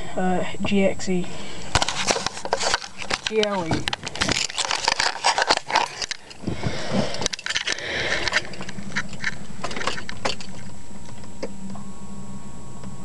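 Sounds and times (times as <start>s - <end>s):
ignition hum: 0.0s - 13.0s
keys jingling: 7.1s - 10.7s.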